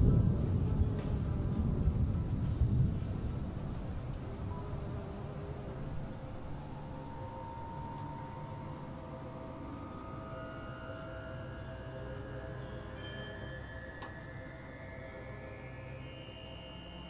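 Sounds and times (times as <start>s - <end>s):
low rumble: 0.0s - 4.2s
crickets trilling: 0.0s - 17.0s
soft ambient music tones: 0.0s - 17.0s.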